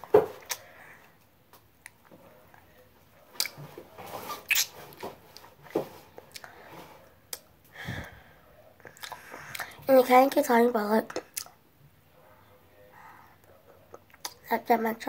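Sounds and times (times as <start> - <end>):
wet mouth smacks and clicks: 4.5 - 4.7, 13.9 - 14.4
soft mouth noise: 8.8 - 9.8.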